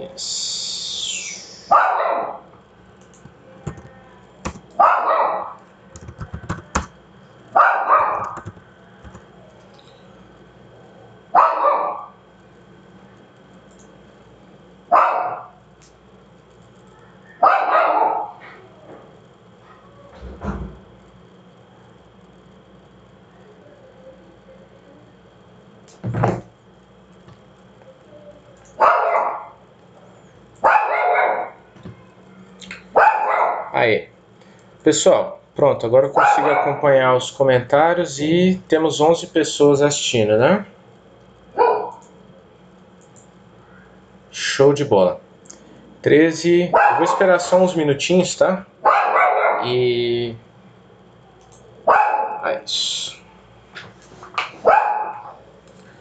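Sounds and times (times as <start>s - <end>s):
dog barking: 1.7s - 2.5s, 4.8s - 5.6s, 7.6s - 8.4s, 11.4s - 12.2s, 14.9s - 15.6s, 17.4s - 18.5s, 28.8s - 29.6s, 30.6s - 31.6s, 32.9s - 33.8s, 36.2s - 36.8s, 41.6s - 42.0s, 46.7s - 47.2s, 48.8s - 49.7s, 51.9s - 52.5s, 54.6s - 55.4s.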